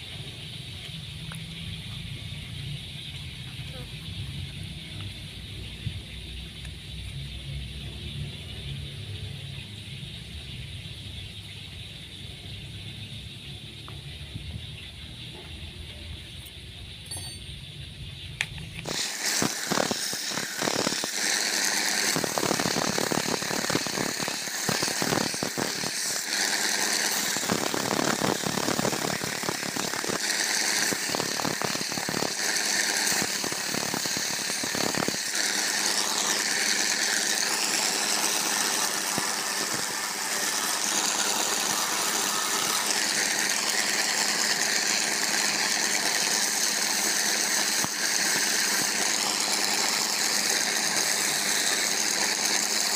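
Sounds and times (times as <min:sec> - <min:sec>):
belt sander running: 0:18.4 - 0:52.9
wood rasping on sanding belt: 0:18.9 - 0:52.9.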